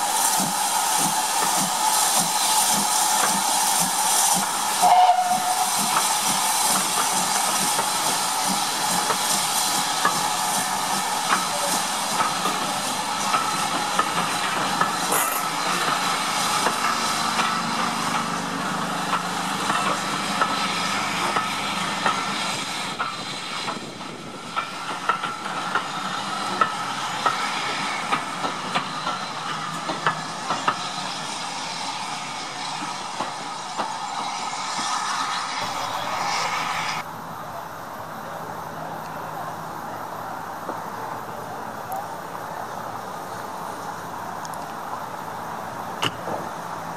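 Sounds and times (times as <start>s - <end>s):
train carriages rumbling: 0.0s - 37.1s.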